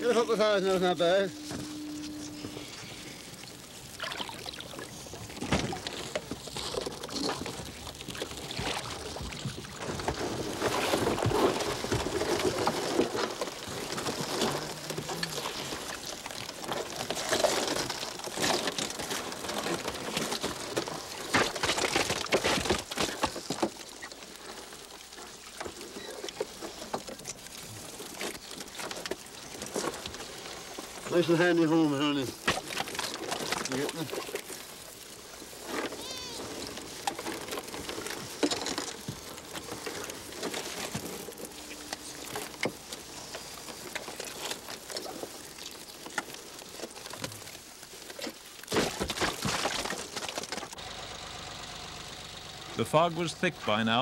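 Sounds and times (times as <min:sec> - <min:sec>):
water splashing and dripping: 0:03.3 - 0:35.9.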